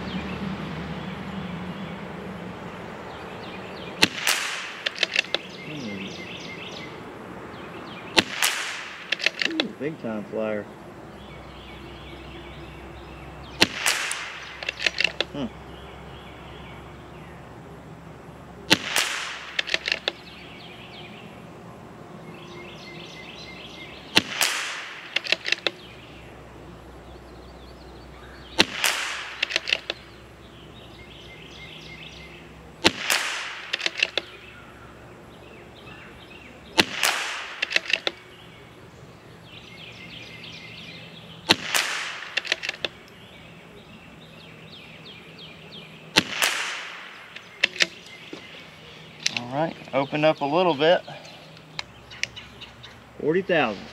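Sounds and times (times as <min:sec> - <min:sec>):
birds singing: 0:00.0 - 0:53.9
rifle bolt clicking: 0:04.0 - 0:05.5, 0:08.2 - 0:09.7, 0:13.6 - 0:15.3, 0:18.7 - 0:20.2, 0:24.2 - 0:25.8, 0:28.6 - 0:30.0, 0:32.8 - 0:34.3, 0:36.8 - 0:38.2, 0:41.5 - 0:43.0, 0:47.3 - 0:48.0
rifle shots: 0:04.0 - 0:05.5, 0:08.1 - 0:09.7, 0:13.6 - 0:15.3, 0:18.7 - 0:20.2, 0:24.1 - 0:25.9, 0:28.6 - 0:30.0, 0:32.8 - 0:34.3, 0:36.8 - 0:38.2, 0:41.4 - 0:42.9, 0:46.1 - 0:48.0.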